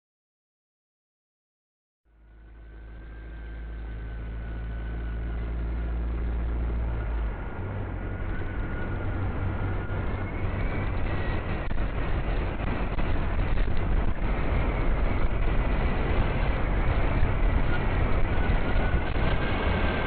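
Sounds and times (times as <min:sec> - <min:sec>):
thin whine: 0:02.2 - 0:20.0.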